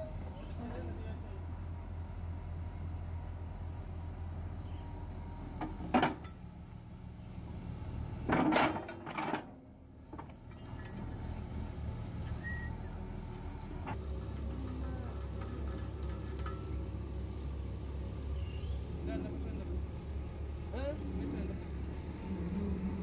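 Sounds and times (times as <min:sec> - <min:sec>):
excavator engine humming: 0:00.0 - 0:23.0
metal clanks: 0:14.7 - 0:16.8.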